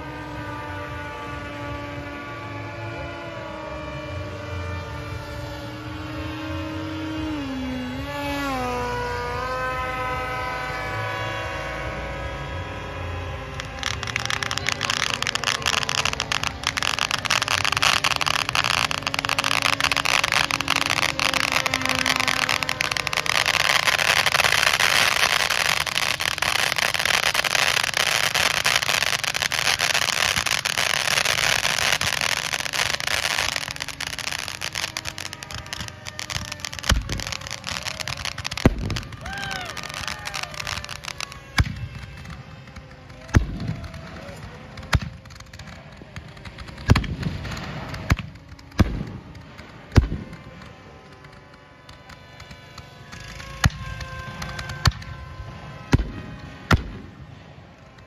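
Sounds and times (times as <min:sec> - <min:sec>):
sharp firework bangs: 0:12.7 - 0:50.6, 0:55.7 - 0:57.2
fireworks fountain crackling hiss: 0:13.3 - 0:50.4.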